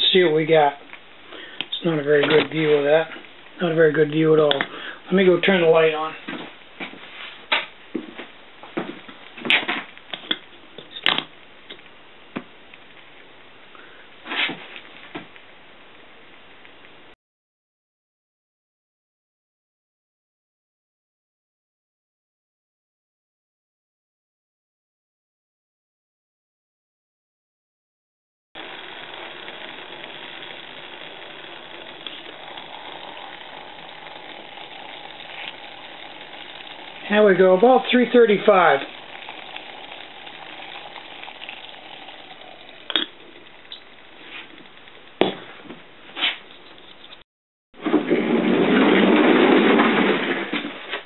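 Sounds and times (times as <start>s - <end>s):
faint steady hiss: 0.0s - 17.2s, 28.6s - 47.2s
water boiling in a pot: 28.6s - 45.2s.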